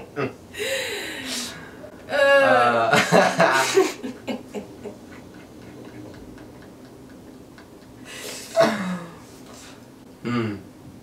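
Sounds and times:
person laughing: 2.5s - 9.2s.

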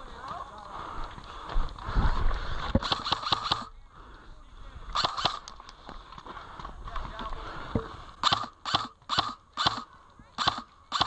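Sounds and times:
wind rumbling on microphone: 0.8s - 2.9s
airsoft gunshots: 2.8s - 3.7s, 5.0s - 5.4s, 8.2s - 11.0s.

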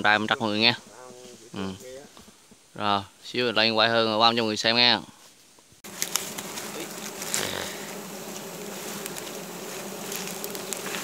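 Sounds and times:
honeybees buzzing: 5.8s - 11.0s.

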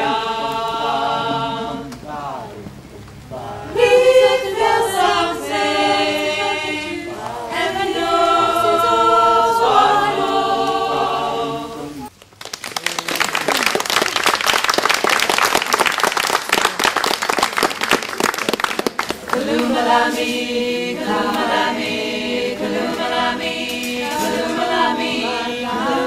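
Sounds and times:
voices singing a cappella: 0.0s - 12.1s, 19.2s - 26.0s
crowd applauding: 12.1s - 20.1s.

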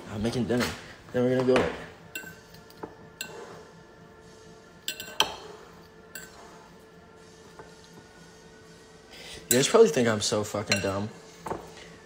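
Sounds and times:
metal fork clinking on ceramic bowl: 2.1s - 3.4s, 4.9s - 5.4s, 9.5s - 9.8s, 10.7s - 11.0s.

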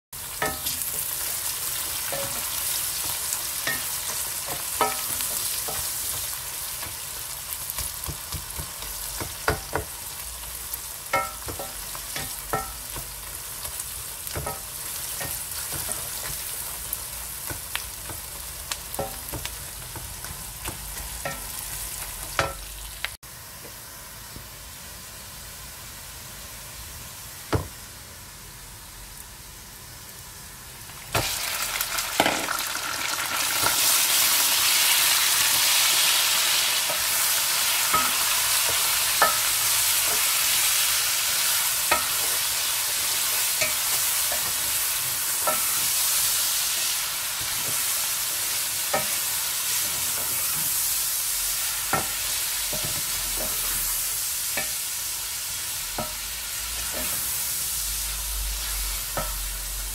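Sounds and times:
onions sizzling in hot oil: 0.2s - 59.9s
wooden spoon tapping pot: 11.1s - 13.1s.

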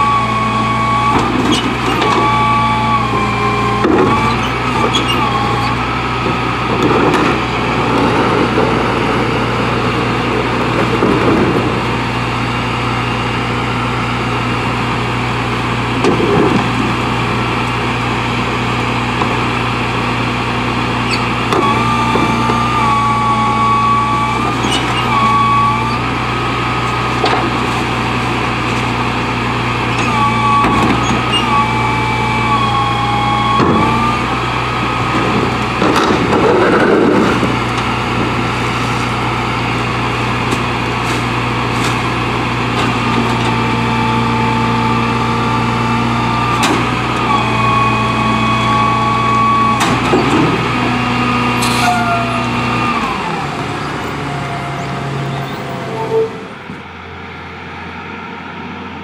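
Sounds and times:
garbage truck engine idling: 0.0s - 59.0s
hydraulic whine: 0.0s - 59.0s
trash tumbling into hopper: 30.1s - 52.4s
cart knocking against truck: 35.2s - 38.4s.

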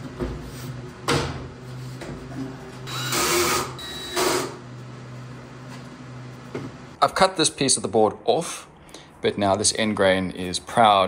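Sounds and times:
power drill running: 2.9s - 4.6s.

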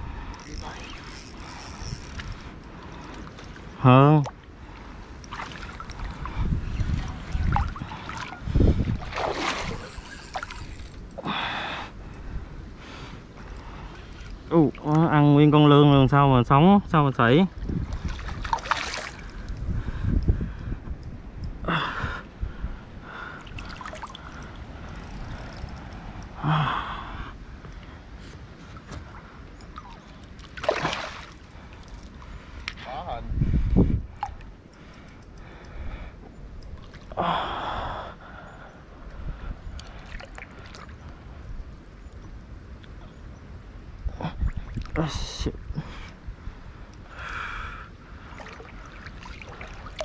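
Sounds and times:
fish thrashing and splashing: 7.0s - 11.0s, 18.0s - 19.4s, 30.0s - 32.0s.

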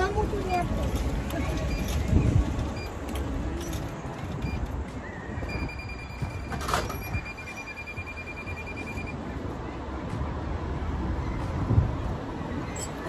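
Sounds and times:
wind rumbling: 0.0s - 7.5s
traffic: 0.0s - 13.0s.

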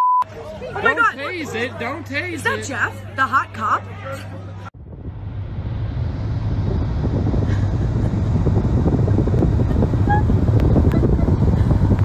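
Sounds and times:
car road noise: 0.3s - 12.0s
wind buffeting microphone: 4.8s - 12.0s.

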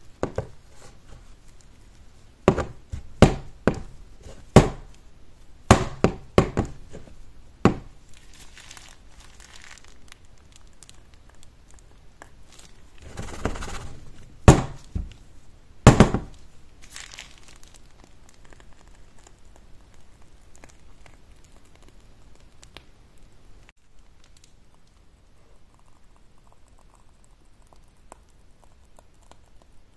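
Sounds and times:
rustle of handling: 8.0s - 14.2s, 16.3s - 19.4s.

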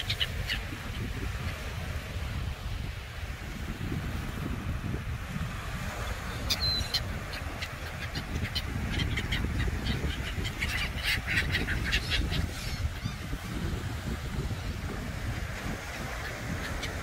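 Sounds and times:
gulls calling: 0.0s - 1.6s, 6.0s - 17.0s
wind on microphone: 0.0s - 17.0s.

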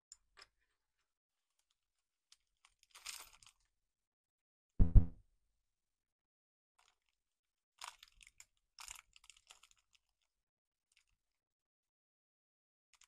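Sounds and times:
plastic parts rustling: 1.4s - 3.7s, 7.8s - 11.4s
thumps on wooden tabletop: 4.8s - 5.2s.

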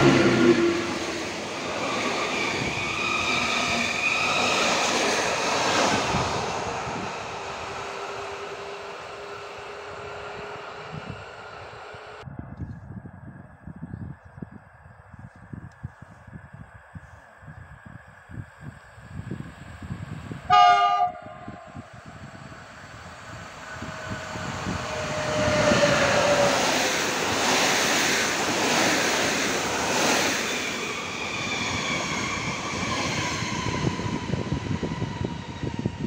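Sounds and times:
train horn blast: 0.0s - 0.9s, 20.5s - 21.9s, 23.8s - 26.7s
train passing with rushing rumble: 0.0s - 12.3s, 17.6s - 36.0s.

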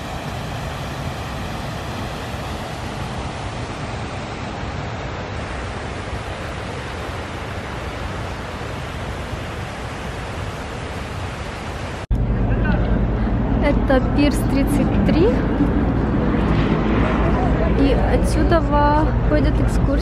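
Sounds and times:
fountain water splashing: 0.0s - 12.1s.

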